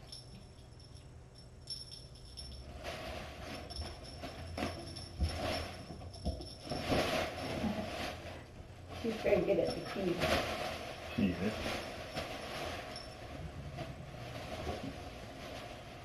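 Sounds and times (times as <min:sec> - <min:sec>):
toy jingling: 0:00.0 - 0:02.7
fabric rustling: 0:02.4 - 0:16.0.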